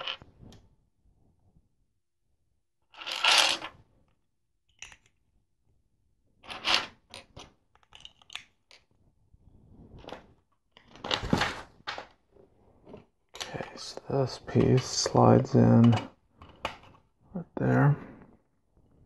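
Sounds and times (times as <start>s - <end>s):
plastic bricks clattering and clicking: 4.7s - 5.2s, 6.4s - 8.9s.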